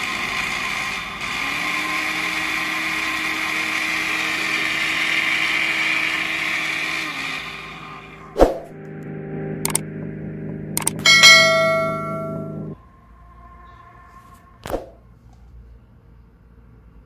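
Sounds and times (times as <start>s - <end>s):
steady hum: 7.6s - 15.2s
mouse clicks: 9.6s - 9.8s, 10.8s - 11.0s
bell ding: 11.0s - 12.8s.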